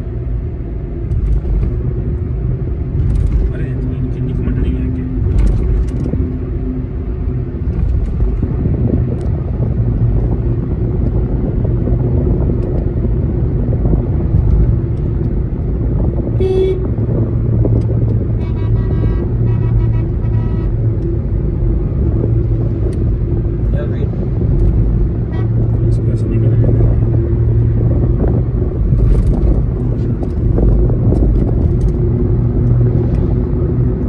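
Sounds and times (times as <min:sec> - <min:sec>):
car road and engine rumble: 0:00.0 - 0:34.0
vehicle horn toot: 0:16.4 - 0:16.9, 0:18.4 - 0:20.8, 0:25.3 - 0:25.6
horn blasts: 0:16.4 - 0:17.0, 0:18.4 - 0:20.8, 0:25.3 - 0:25.6.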